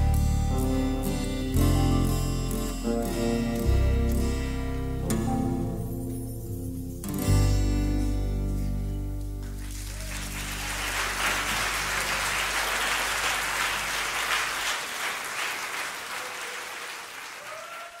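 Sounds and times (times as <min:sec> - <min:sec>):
small group applauding: 0:09.4 - 0:18.0.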